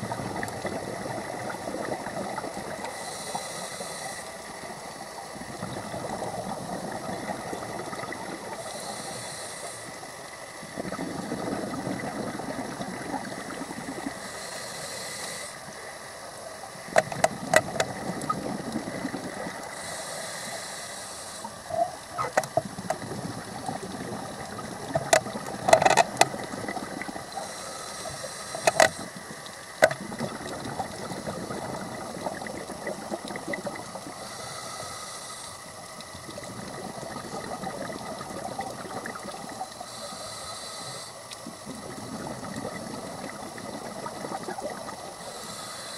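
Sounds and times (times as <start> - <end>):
exhaled bubbles rumbling: 0.0 - 3.0, 4.6 - 8.7, 10.6 - 14.2, 16.9 - 19.7, 21.7 - 27.4, 28.7 - 34.2, 36.0 - 39.8, 41.4 - 45.2
regulator hissing inhale: 2.7 - 4.8, 8.4 - 10.7, 13.5 - 16.4, 19.3 - 21.7, 27.2 - 29.8, 33.8 - 36.0, 39.3 - 41.7, 44.4 - 45.9.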